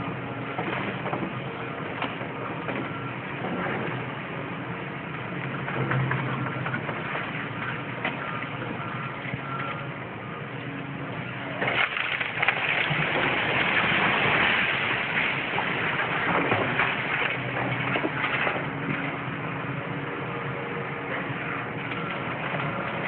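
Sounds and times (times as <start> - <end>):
excavator engine running: 0.0 - 23.0
crashing clatter of falling bricks: 11.6 - 17.4.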